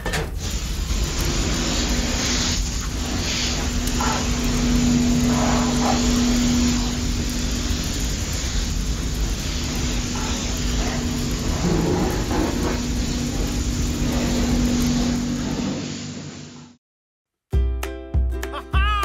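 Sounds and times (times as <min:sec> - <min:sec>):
water jet spraying: 0:00.3 - 0:16.7
electric water pump humming: 0:00.3 - 0:16.8.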